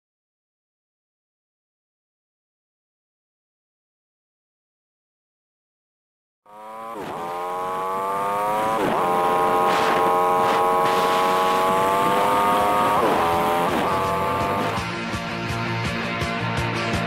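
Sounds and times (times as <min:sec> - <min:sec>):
sped-up motorcycle engine: 0:06.5 - 0:15.6.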